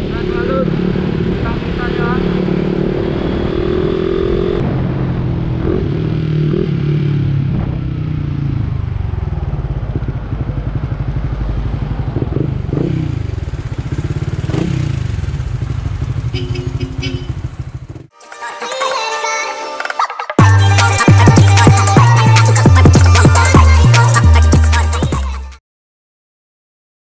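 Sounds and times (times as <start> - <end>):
motorcycle engine: 0.0 - 18.2.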